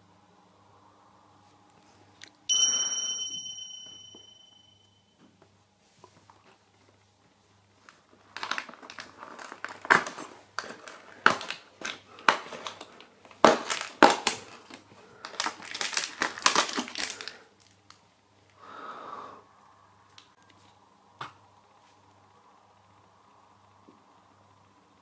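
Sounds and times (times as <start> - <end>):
plastic packet crinkling: 13.6 - 18.0.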